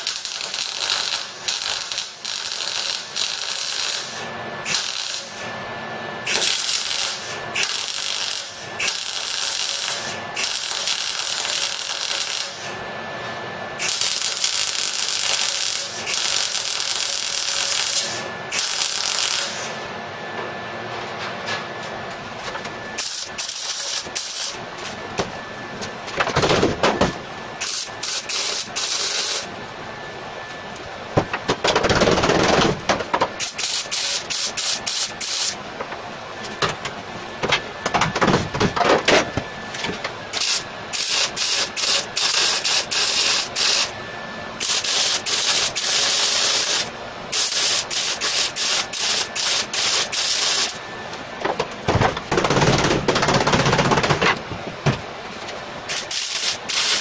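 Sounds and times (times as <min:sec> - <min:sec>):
welder crackling and hissing: 0:00.0 - 0:05.5, 0:06.2 - 0:12.8, 0:13.8 - 0:19.8, 0:22.9 - 0:25.0, 0:27.6 - 0:29.5, 0:33.4 - 0:35.6, 0:39.8 - 0:44.0, 0:44.6 - 0:50.8, 0:55.5 - 0:57.0.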